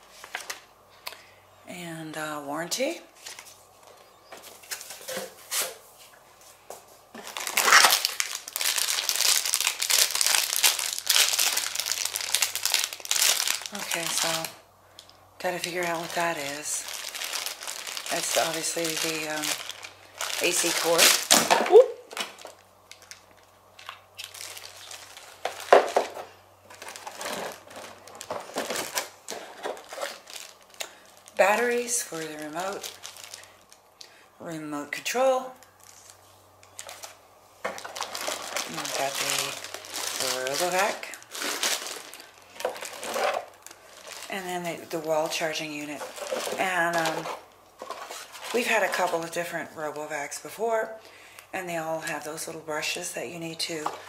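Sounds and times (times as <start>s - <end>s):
paper and packaging rustling: 0.0s - 0.6s, 3.2s - 6.6s, 7.2s - 33.8s, 35.6s - 49.5s
plastic bag crinkling: 7.2s - 34.1s, 35.0s - 49.5s.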